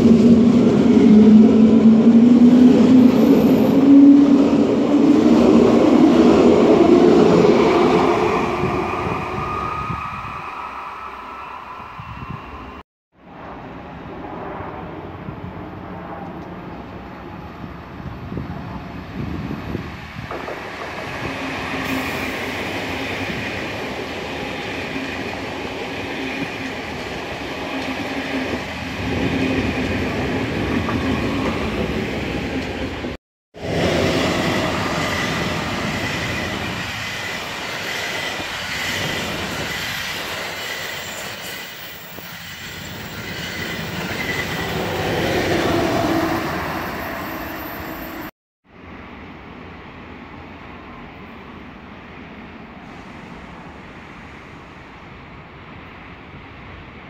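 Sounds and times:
train wheels rumbling on rail: 0:15.6 - 0:48.3.

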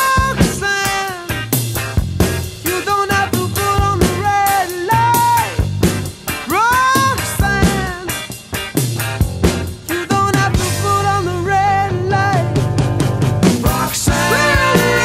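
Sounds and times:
rock music: 0:00.0 - 0:15.0
steady drum beat: 0:00.0 - 0:15.0
sliding lead melody: 0:07.2 - 0:15.0.

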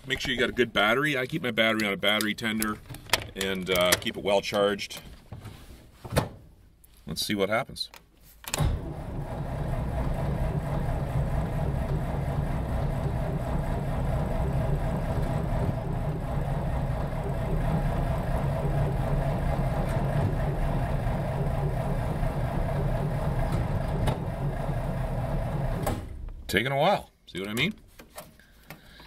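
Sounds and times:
car engine cranking without firing: 0:08.6 - 0:26.4.

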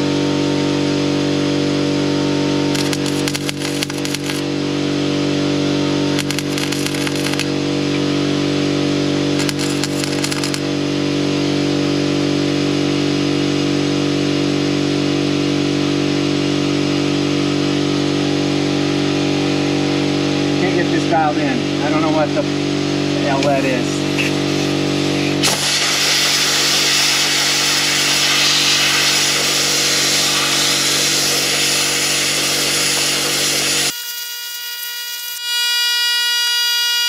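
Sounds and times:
air compressor hum: 0:01.6 - 0:11.0, 0:16.3 - 0:35.4
welding arc crackle: 0:02.7 - 0:04.4, 0:06.2 - 0:07.6, 0:09.4 - 0:10.6, 0:24.1 - 0:36.5.

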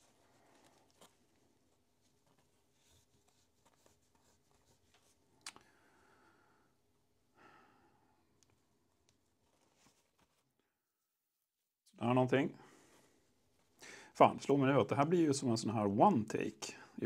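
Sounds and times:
cloth rubbing on metal: 0:00.0 - 0:05.2.

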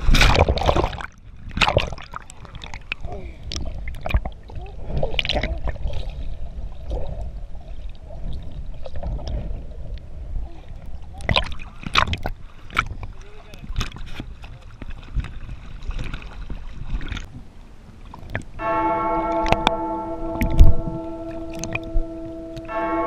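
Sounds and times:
water sloshing and gurgling: 0:00.0 - 0:23.0
water splashes: 0:00.0 - 0:23.0
low rumble: 0:17.2 - 0:23.0.

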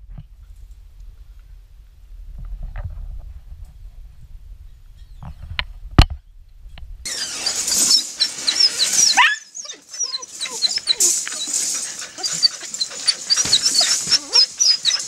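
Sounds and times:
puppies whining and squeaking: 0:07.1 - 0:15.0
clicks and rattles: 0:09.8 - 0:15.0.

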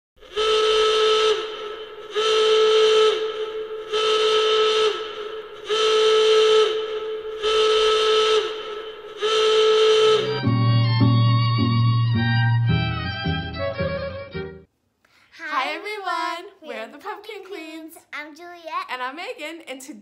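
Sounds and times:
whistle-like warning horn blasts: 0:00.2 - 0:11.3
string music: 0:10.2 - 0:14.7.

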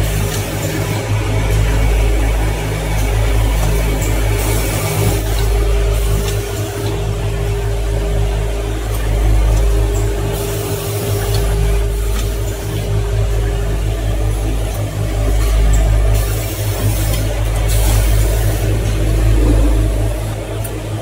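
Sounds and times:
machine hum: 0:00.0 - 0:21.0
constant mid-pitched tone: 0:18.2 - 0:20.6.

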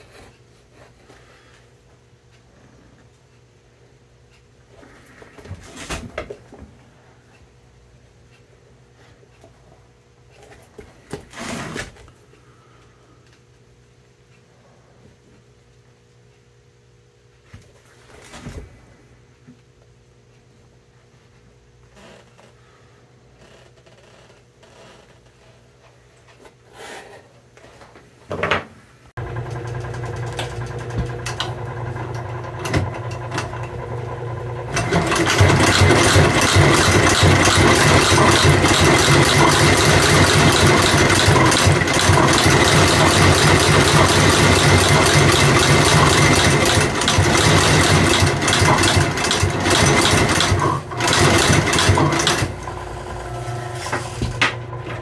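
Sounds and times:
stitching machine motor hum: 0:11.3 - 0:11.9, 0:29.2 - 0:55.0
stitching machine clattering: 0:29.2 - 0:54.7.

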